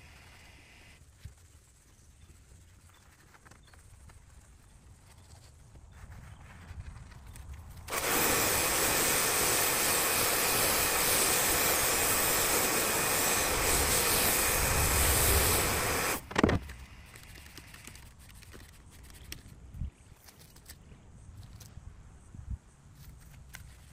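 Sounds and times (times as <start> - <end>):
pressure washer spraying hiss: 7.9 - 16.2.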